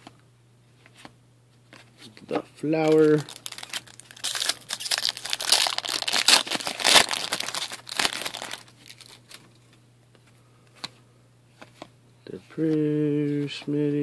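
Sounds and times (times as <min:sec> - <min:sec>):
cards rustling: 0:01.7 - 0:11.9
foil wrapper crinkling torn open: 0:02.8 - 0:09.4.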